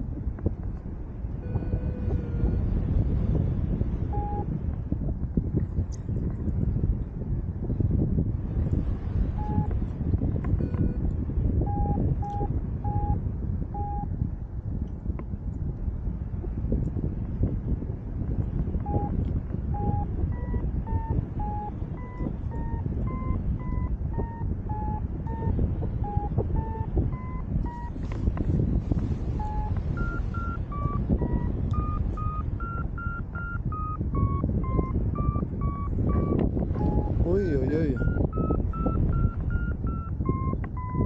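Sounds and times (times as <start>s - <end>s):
wind noise on microphone: 0.0s - 41.0s
variometer beeping: 1.4s - 2.8s, 4.0s - 4.6s, 9.4s - 9.8s, 10.4s - 14.1s, 18.8s - 41.0s.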